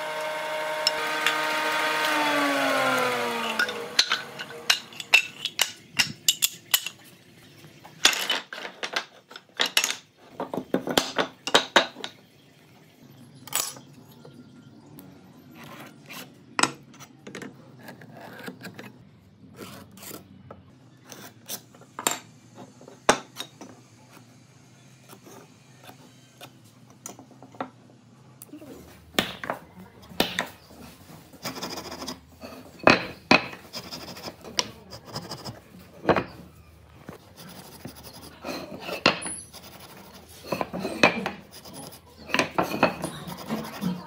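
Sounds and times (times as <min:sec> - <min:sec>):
wooden blocks knocking and clattering: 0:02.9 - 0:07.0, 0:07.9 - 0:12.3.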